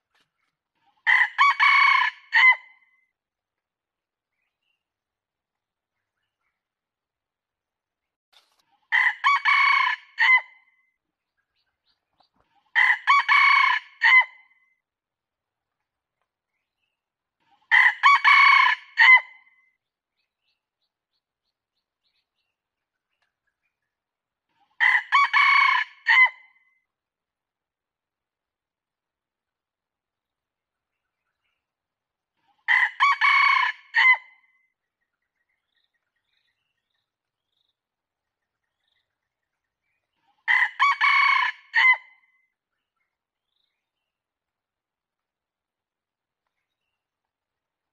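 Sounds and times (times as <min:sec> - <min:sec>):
rooster crowing: 0:01.1 - 0:02.6, 0:09.0 - 0:10.4, 0:12.8 - 0:14.3, 0:17.7 - 0:19.2, 0:24.8 - 0:26.4, 0:32.7 - 0:34.2, 0:40.5 - 0:42.0.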